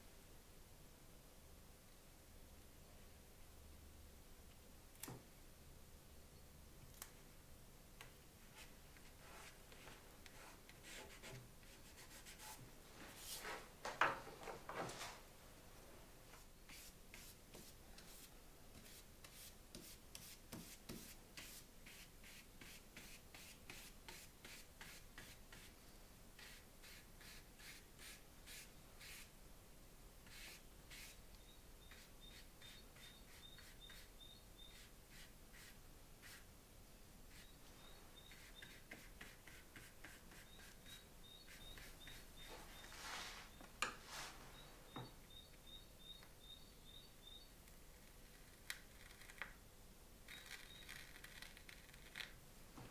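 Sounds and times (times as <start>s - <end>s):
scratchy drawing strokes on paper: 8.5s - 12.6s, 16.7s - 25.7s, 26.4s - 29.3s, 30.2s - 31.2s, 31.8s - 36.5s, 37.3s - 44.4s.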